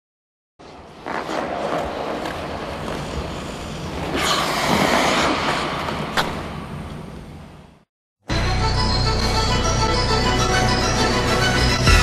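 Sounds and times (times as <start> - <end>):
skate blades scraping on ice: 0.6 - 6.3.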